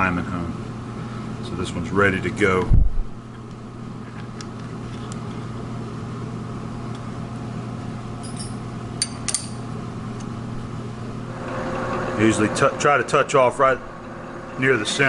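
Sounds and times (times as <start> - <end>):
electric motor hum: 9.8 - 15.0.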